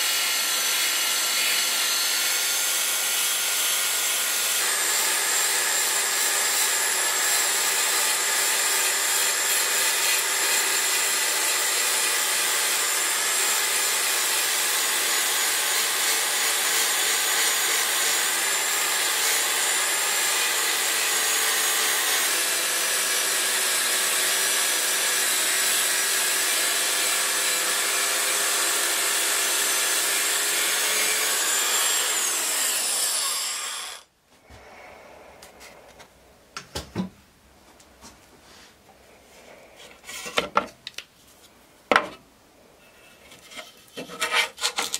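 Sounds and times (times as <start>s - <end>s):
belt sander grinding steel: 0.0s - 34.1s.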